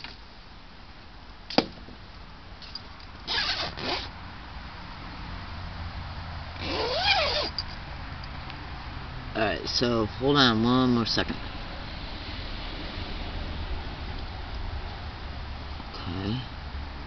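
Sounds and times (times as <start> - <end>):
squeak rising and falling: 3.3 - 4.1, 6.6 - 7.7.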